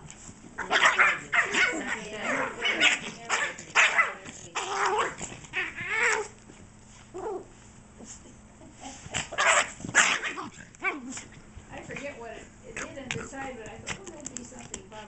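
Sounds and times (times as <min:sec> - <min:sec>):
small dog squealing and growling: 0:00.6 - 0:06.4, 0:07.1 - 0:07.5, 0:08.6 - 0:11.4.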